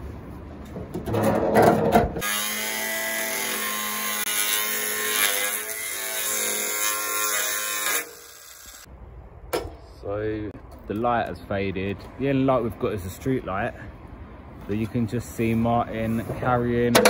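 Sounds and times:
knocks and clanks: 0:00.6 - 0:02.2
angle grinder cutting steel: 0:02.2 - 0:08.9.

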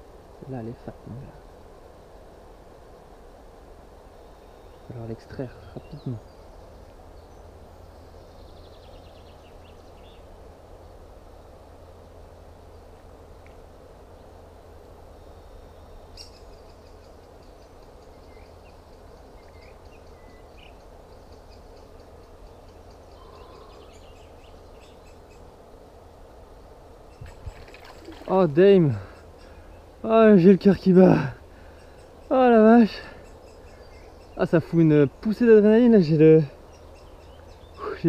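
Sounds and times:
steady low hiss: 0:00.0 - 0:38.0
faint bird chirps: 0:15.2 - 0:25.5, 0:27.1 - 0:29.9, 0:30.6 - 0:35.4.

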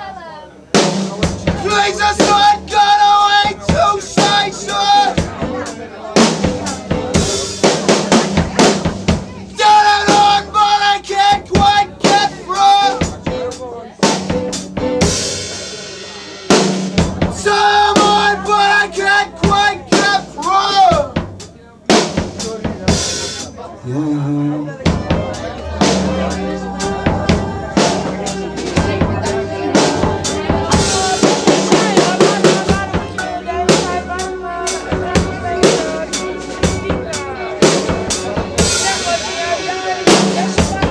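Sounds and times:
live band music: 0:00.0 - 0:40.9
rapid bass drum and snare hits: 0:00.8 - 0:15.6, 0:16.2 - 0:18.7, 0:19.4 - 0:23.5, 0:24.9 - 0:35.9, 0:40.1 - 0:40.9
violin: 0:01.3 - 0:20.6, 0:22.4 - 0:40.9
sustained melodic line: 0:23.8 - 0:40.9.

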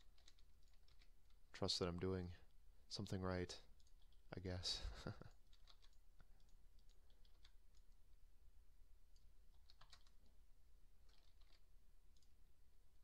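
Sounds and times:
keyboard and mouse clicking: 0:00.0 - 0:01.4, 0:03.7 - 0:04.2, 0:05.3 - 0:08.1, 0:09.1 - 0:10.3, 0:11.0 - 0:12.4.

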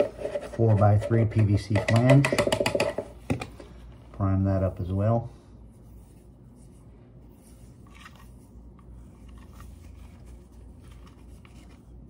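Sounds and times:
dauber scratching: 0:00.0 - 0:01.8
low steady hum: 0:00.0 - 0:12.0.

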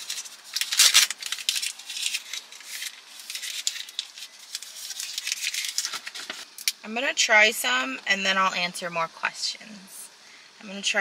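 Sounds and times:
paper sleeve tearing and crinkling: 0:00.0 - 0:06.6.

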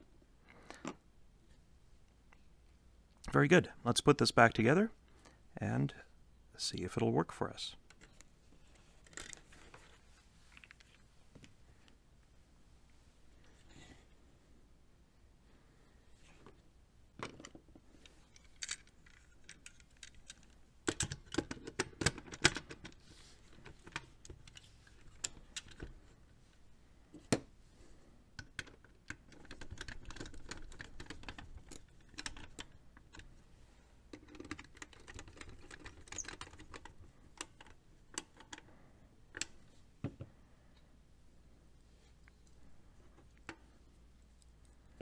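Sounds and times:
plastic and metal parts clicking: 0:18.3 - 0:25.9, 0:28.4 - 0:33.3, 0:34.1 - 0:38.7.

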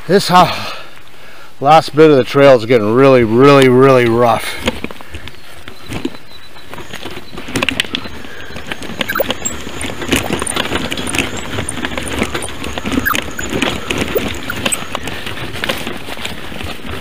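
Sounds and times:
bicycle rattling over rough trail: 0:03.5 - 0:17.0.

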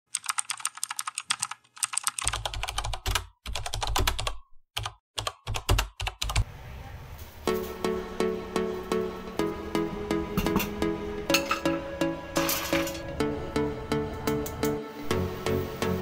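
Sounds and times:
keyboard typing clicks: 0:00.1 - 0:06.4
background music: 0:07.4 - 0:16.0.

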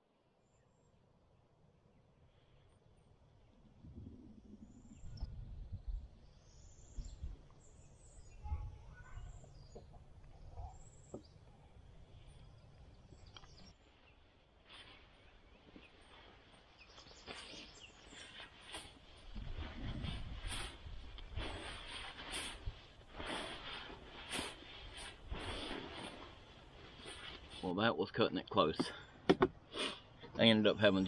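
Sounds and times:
faint bird chirps and calls: 0:01.8 - 0:18.9.

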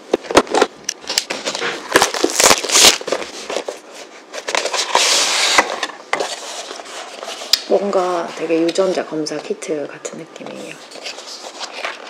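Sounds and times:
plastic wrap crinkling and tearing: 0:00.2 - 0:09.1, 0:10.5 - 0:12.0.

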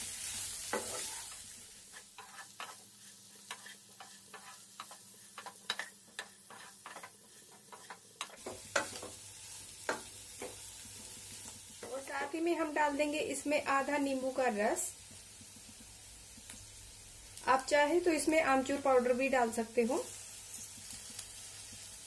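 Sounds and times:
oil sizzling: 0:00.0 - 0:22.0
spatula scraping pan: 0:00.2 - 0:12.4.

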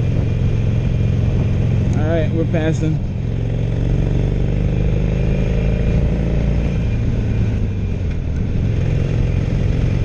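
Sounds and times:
wind noise: 0:00.0 - 0:04.2
motorcycle engine under throttle: 0:00.0 - 0:10.0
road noise: 0:00.0 - 0:10.0.

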